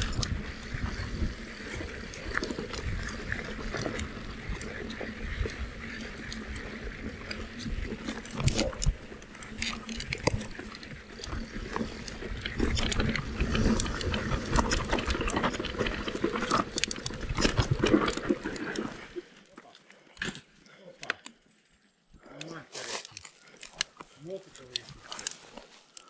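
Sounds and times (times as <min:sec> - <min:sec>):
bike rattling over stones: 0:00.0 - 0:19.4.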